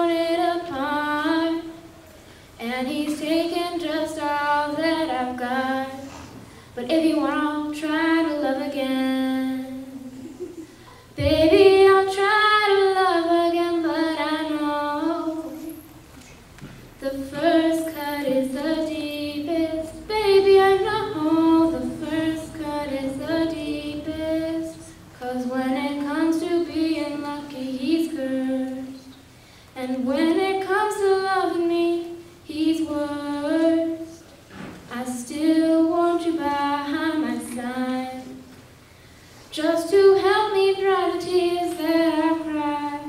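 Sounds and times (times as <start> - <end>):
girl singing unaccompanied: 0.0 - 16.0, 17.0 - 34.3, 34.9 - 38.6, 39.5 - 43.0.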